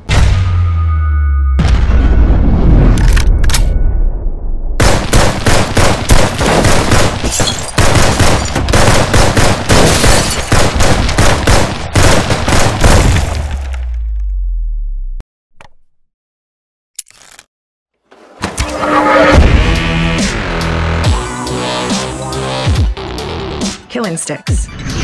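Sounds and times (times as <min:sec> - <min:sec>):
rapid rifle fire: 0:04.8 - 0:13.3.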